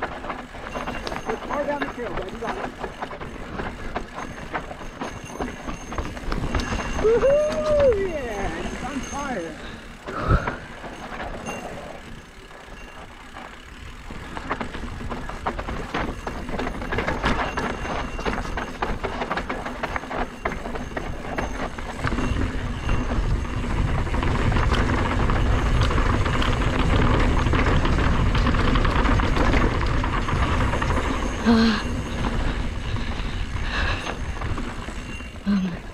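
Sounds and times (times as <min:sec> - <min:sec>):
bike rattling: 0:00.0 - 0:35.9
bike tyres crunching over dirt: 0:00.0 - 0:35.9.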